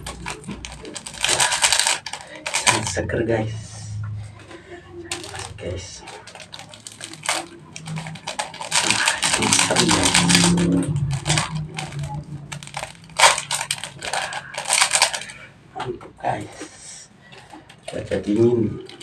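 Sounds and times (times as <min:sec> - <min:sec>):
plastic sachets crinkling: 0:00.0 - 0:03.0, 0:05.0 - 0:15.5, 0:17.4 - 0:19.0.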